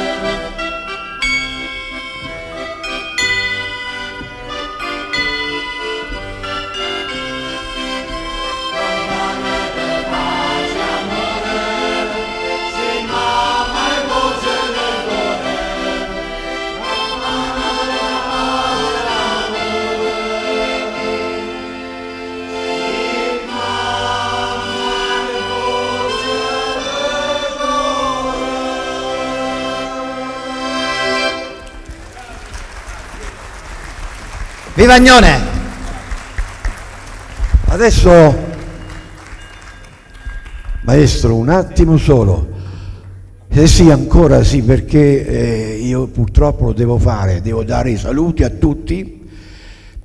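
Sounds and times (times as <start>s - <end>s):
voices singing along: 0.0s - 0.7s, 8.7s - 31.6s
accordion playing chords: 0.0s - 37.4s.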